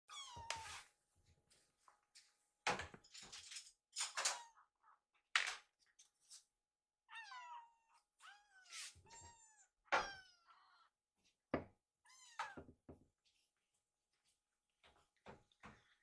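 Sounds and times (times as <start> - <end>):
kittens meowing: 7.1 - 10.9.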